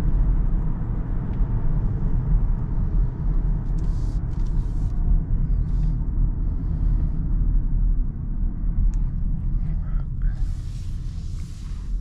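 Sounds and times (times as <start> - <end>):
car cabin road rumble: 0.0 - 12.0.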